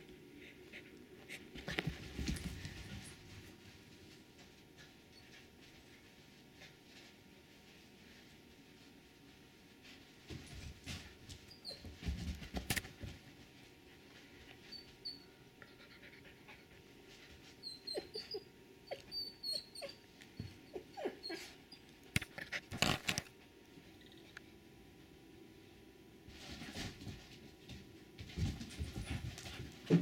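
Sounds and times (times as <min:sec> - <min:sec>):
high-pitched dog whimpers: 0:17.6 - 0:21.8.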